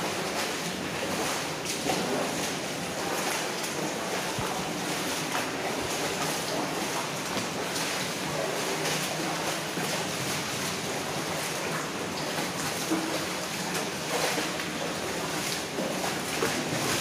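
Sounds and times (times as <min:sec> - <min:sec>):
splashing footsteps in water: 0:00.0 - 0:17.0
water rushing and sloshing: 0:00.0 - 0:17.0.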